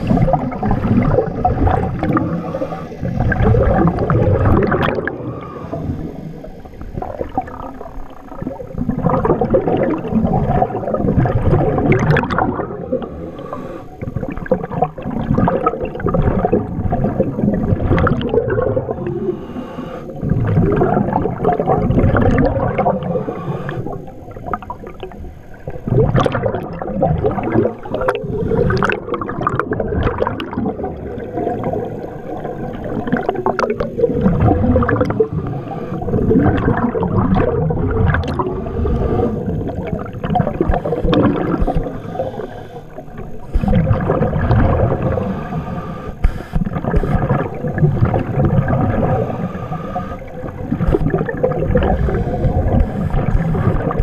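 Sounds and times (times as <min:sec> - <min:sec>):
underwater gurgling and sloshing: 0:00.0 - 0:54.0
faint ticks: 0:46.0 - 0:47.3.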